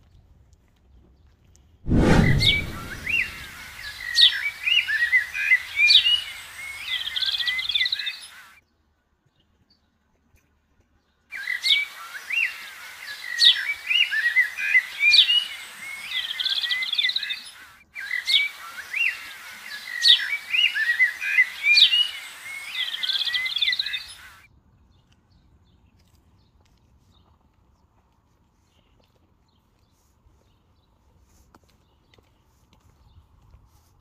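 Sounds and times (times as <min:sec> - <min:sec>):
birds chirping and singing: 0:02.2 - 0:08.5, 0:11.4 - 0:24.4.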